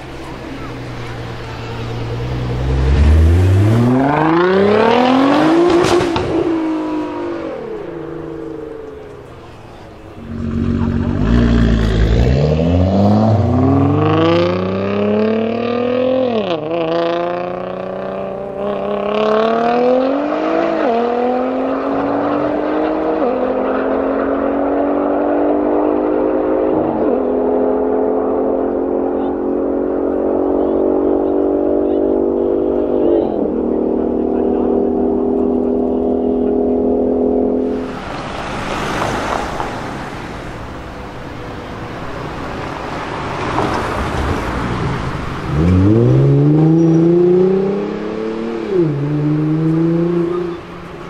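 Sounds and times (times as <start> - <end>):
car engine accelerating hard: 0.0 - 51.0.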